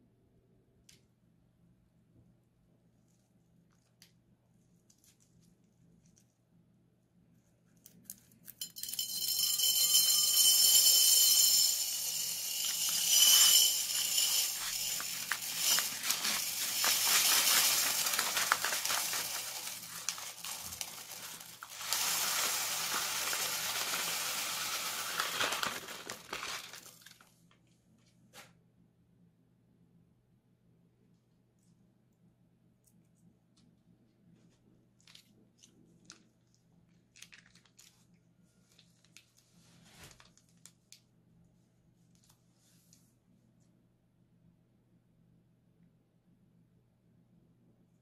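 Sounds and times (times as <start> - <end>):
beads pouring into ceramic bowl: 8.6 - 27.2.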